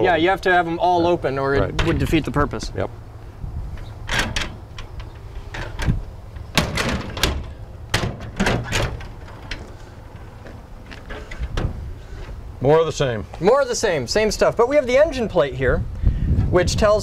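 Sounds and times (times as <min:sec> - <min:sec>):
steady low rumble: 0:00.0 - 0:17.0
metal latch clicks and knocks: 0:03.8 - 0:09.7.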